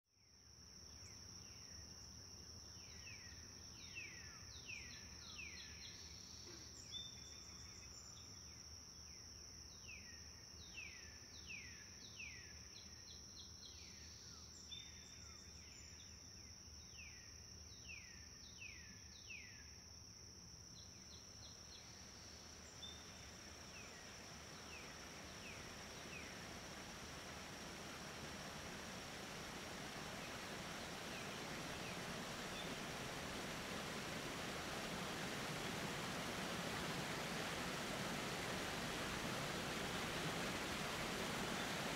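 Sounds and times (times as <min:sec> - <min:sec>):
high insect trill: 0:20.7 - 0:41.9
soft rushing noise: 0:23.2 - 0:41.9.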